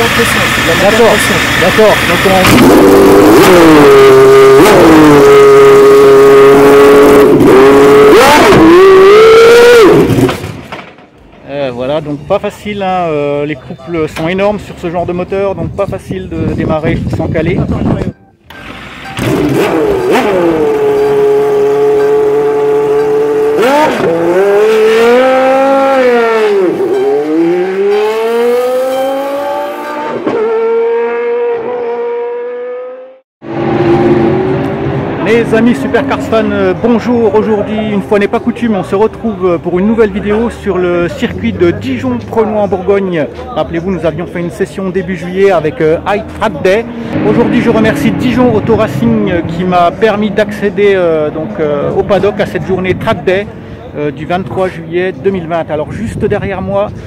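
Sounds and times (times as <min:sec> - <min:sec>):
racing car engine revving: 0:00.0 - 0:10.6, 0:18.5 - 0:42.4, 0:46.1 - 0:53.0.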